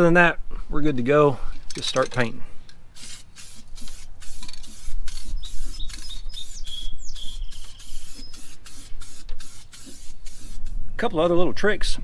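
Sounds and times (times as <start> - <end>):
aerosol can spraying: 2.9 - 10.8.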